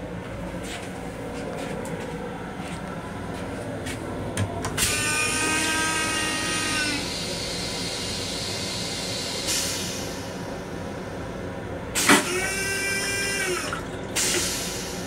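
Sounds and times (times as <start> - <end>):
rail car rumble: 0.0 - 12.4, 13.4 - 15.0
steady whine of several tones: 0.0 - 13.8
toilet flushing rush of air and water: 4.5 - 15.0
toilet flush clicks: 12.0 - 14.7.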